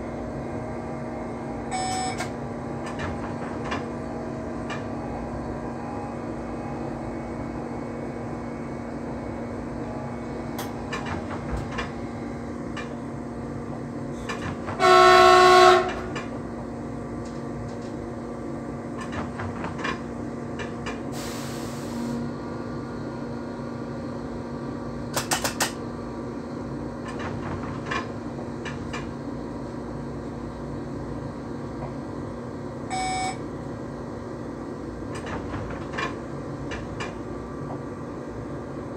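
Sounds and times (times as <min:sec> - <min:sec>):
low drone in train cab: 0:00.0 - 0:38.9
train running noise: 0:00.0 - 0:38.9
brief beep: 0:01.7 - 0:02.2, 0:32.9 - 0:33.4
train horn blast: 0:14.8 - 0:16.2.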